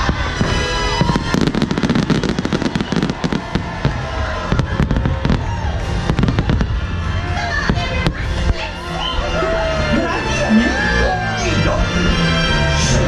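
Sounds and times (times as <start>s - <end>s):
fireworks bursting: 0.0s - 8.9s.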